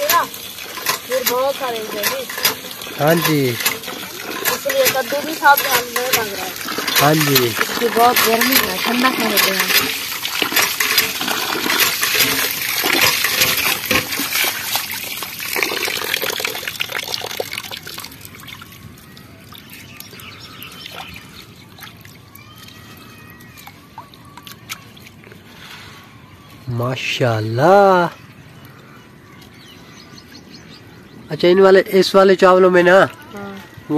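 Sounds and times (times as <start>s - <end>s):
water sloshing as rice is washed: 0.0s - 25.9s.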